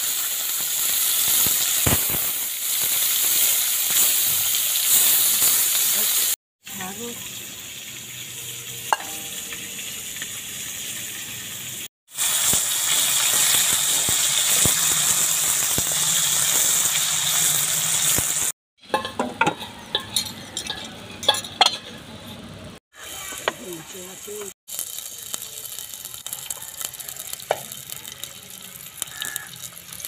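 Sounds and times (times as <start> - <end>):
fish frying in hot oil: 0.0 - 18.6, 22.9 - 30.0
metal utensils clinking: 18.8 - 22.7.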